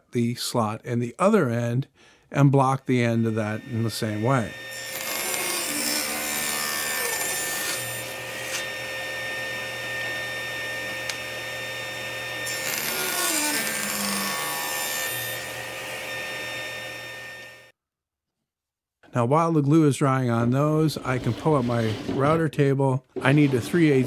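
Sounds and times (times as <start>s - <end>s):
table saw cutting wood: 2.9s - 17.7s, 21.0s - 22.5s, 23.2s - 24.0s.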